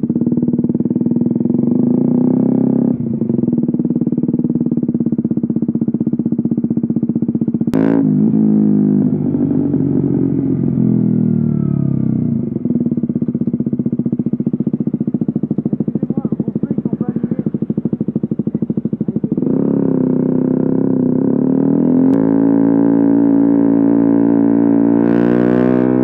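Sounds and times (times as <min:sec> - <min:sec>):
motorcycle engine running: 0:00.0 - 0:26.0
sharp exhaust crack: 0:13.2 - 0:20.5.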